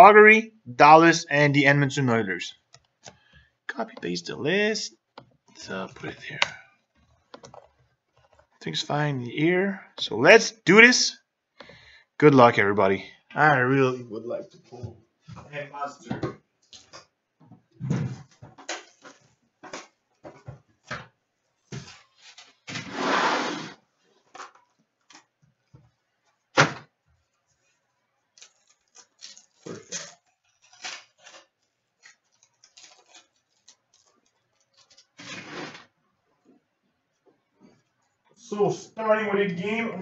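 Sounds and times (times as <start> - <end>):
foil pack rustling open: 28.3 - 35.8.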